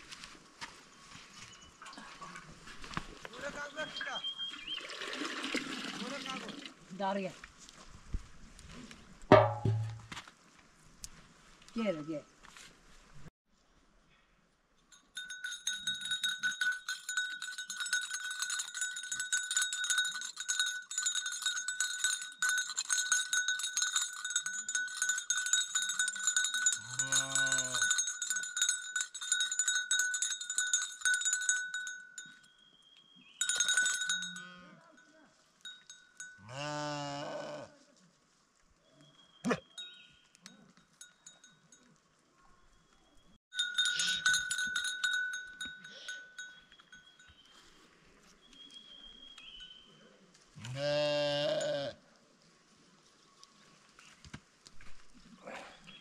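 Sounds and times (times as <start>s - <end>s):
sheep bells jingling: 14.8s - 37.1s, 39.5s - 42.2s, 43.4s - 47.8s, 48.9s - 50.0s
sheep bleating: 36.5s - 37.8s, 50.6s - 52.0s.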